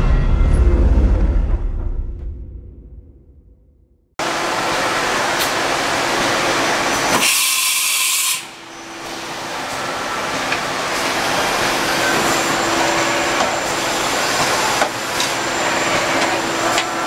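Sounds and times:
hiss of running machinery: 4.2 - 17.0
sharp air blast hiss: 7.1 - 8.6.

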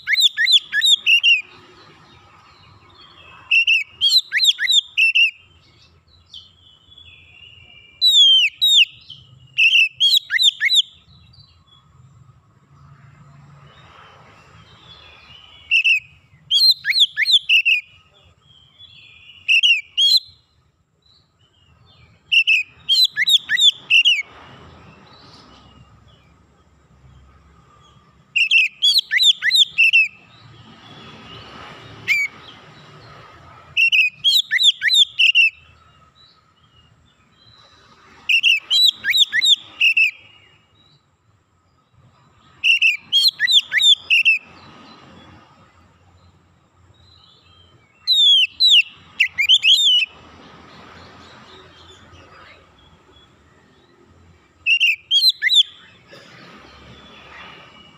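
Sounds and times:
bird singing whistled phrases: 0.0 - 1.5, 3.1 - 11.6, 14.8 - 20.5, 21.7 - 24.3, 28.3 - 30.2, 33.7 - 35.8, 38.3 - 41.0, 42.4 - 44.6, 47.0 - 50.2, 54.6 - 56.0.

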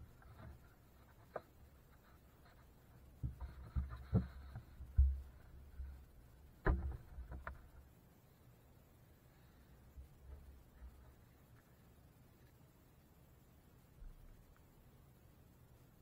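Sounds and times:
muffled knocks on boat hull: 6.6 - 7.6.

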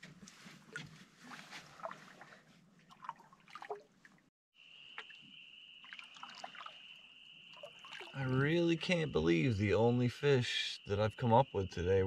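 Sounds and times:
water dripping off paddle: 5.8 - 8.4.

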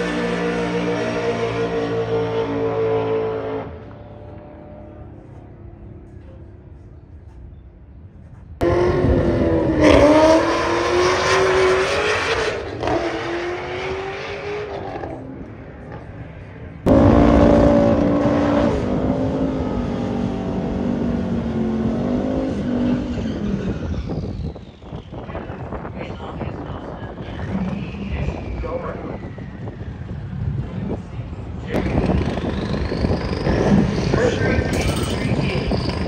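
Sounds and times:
race car engines at full throttle: 0.0 - 36.0
engine revving during burnout: 8.6 - 15.2, 16.9 - 23.7.

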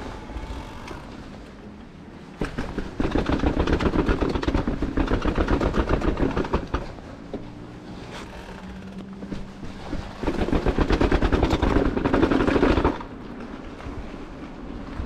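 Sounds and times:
mountain bike rattling on trail: 2.4 - 7.2, 8.1 - 14.0.

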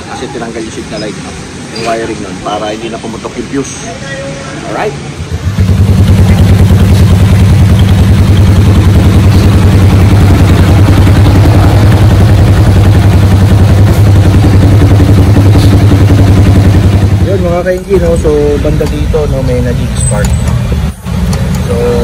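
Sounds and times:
motorcycle engine idling: 5.3 - 22.0.

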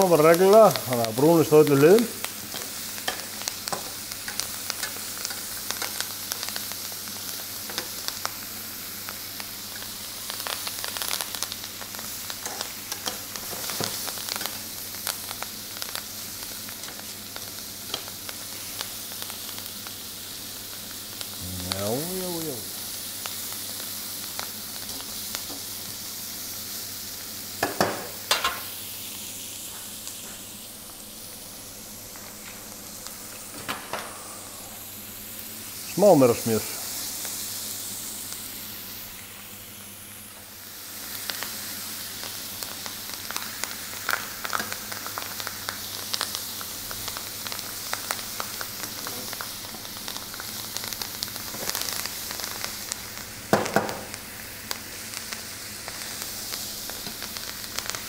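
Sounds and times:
food sizzling in frying pan: 0.0 - 58.0
metal tongs clicking on pan: 12.4 - 13.2.

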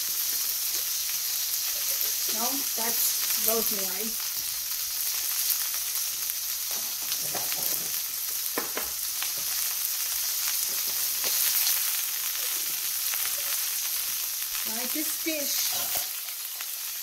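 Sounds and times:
steak sizzling in a skillet: 0.0 - 17.0.

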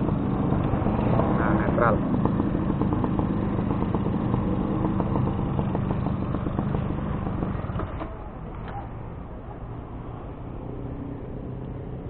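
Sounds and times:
two-stroke engine idling: 0.0 - 9.2.

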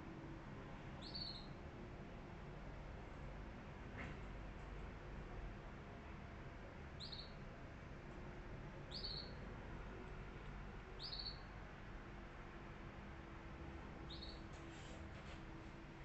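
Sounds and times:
faint low background noise: 0.0 - 16.0
bird chirping: 1.0 - 1.6, 7.0 - 7.4, 8.9 - 9.4, 11.0 - 11.5, 14.1 - 14.4.

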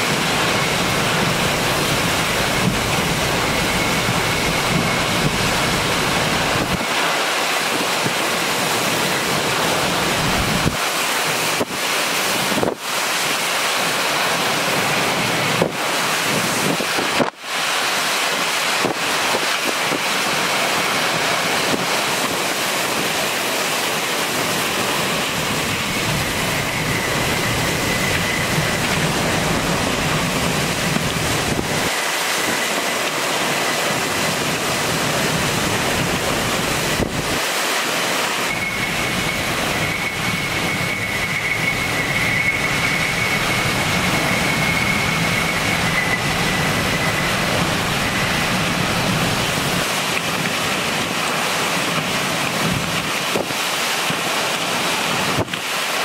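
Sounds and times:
wind buffeting microphone: 0.0 - 12.9, 24.6 - 37.5
hurricane winds and driving rain: 0.0 - 56.0.

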